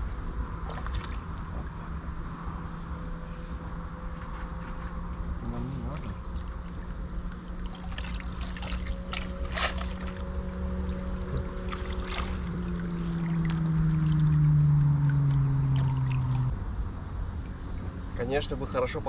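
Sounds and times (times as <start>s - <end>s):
engine hum: 0.0s - 19.0s
water splashes and drips: 0.5s - 1.8s, 5.8s - 17.6s.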